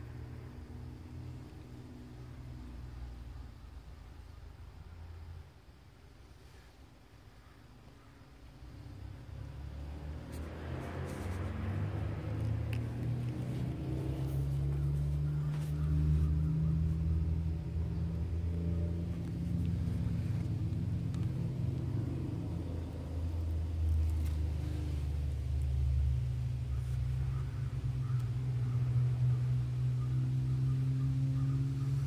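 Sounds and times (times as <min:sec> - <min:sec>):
engine running: 0:08.4 - 0:32.0.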